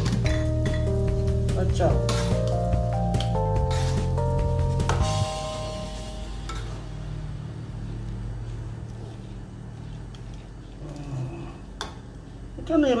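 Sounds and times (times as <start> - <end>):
low steady hum: 4.2 - 13.0.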